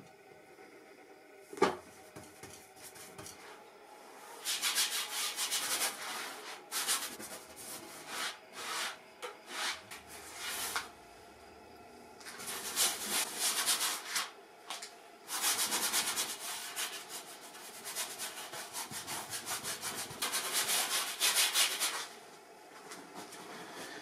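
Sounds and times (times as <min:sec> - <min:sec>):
paintbrush scrubbing on canvas: 0:04.4 - 0:10.9, 0:15.3 - 0:22.1.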